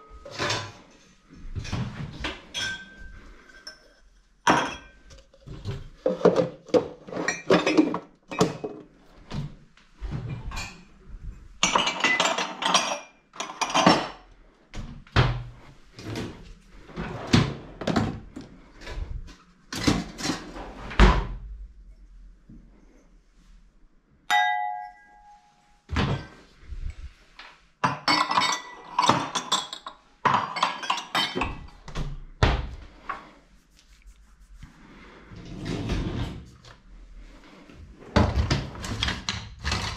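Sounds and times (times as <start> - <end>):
glasses and mugs clinking: 2.5 - 3.8, 24.3 - 25.5, 27.9 - 31.6.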